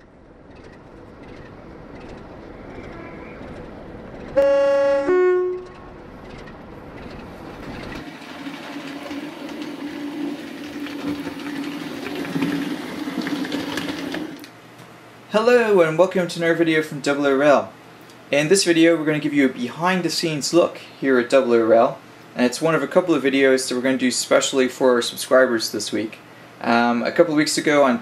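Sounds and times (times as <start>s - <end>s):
locomotive engine drone: 0.0s - 8.0s
train rumble: 0.0s - 11.2s
two-tone train horn: 4.4s - 5.8s.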